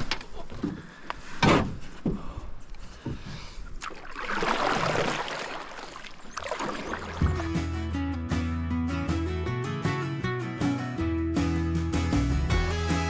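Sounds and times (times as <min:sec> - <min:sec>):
water sloshing: 0:03.7 - 0:07.7
knocks and bumps on boat: 0:07.1 - 0:07.6.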